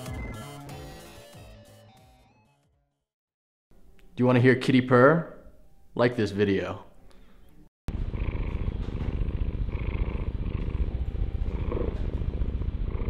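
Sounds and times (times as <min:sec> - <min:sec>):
cat purring: 0:07.9 - 0:13.0.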